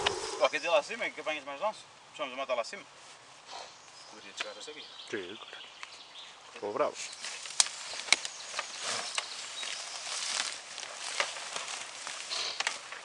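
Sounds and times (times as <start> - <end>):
footsteps in undergrowth: 7.0 - 13.0
rustling in leafy undergrowth: 7.0 - 13.0.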